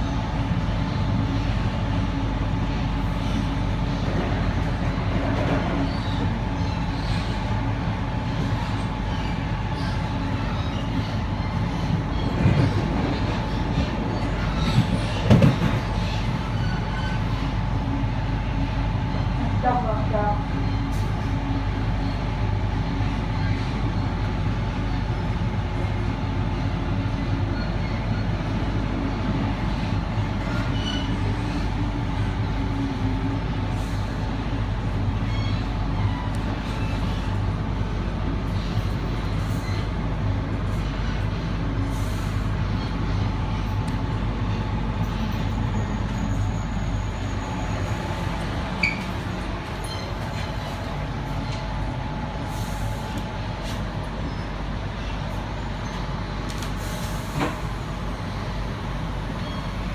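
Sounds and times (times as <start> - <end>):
train wheels and motors rumbling: 0.0 - 59.9.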